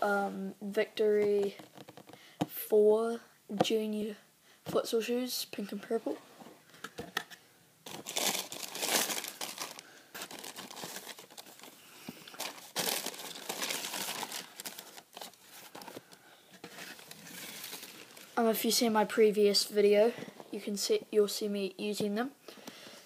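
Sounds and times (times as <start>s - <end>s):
tissue paper crinkling: 7.8s - 18.4s.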